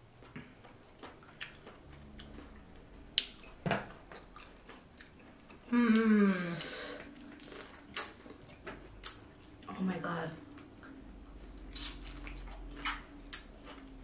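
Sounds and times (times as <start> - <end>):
woman humming mmm: 5.6 - 7.0.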